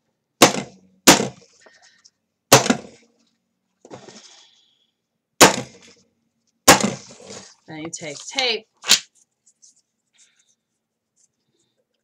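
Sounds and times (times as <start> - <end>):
paper rustling: 6.9 - 11.7.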